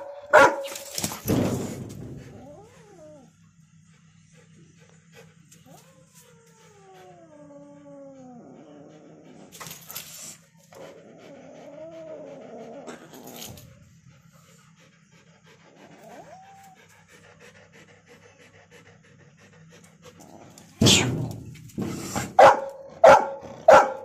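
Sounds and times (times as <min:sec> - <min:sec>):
animal whining growl: 0:02.2 - 0:03.4, 0:05.6 - 0:14.3, 0:15.1 - 0:21.3
sudden loud burst: 0:20.8 - 0:21.5.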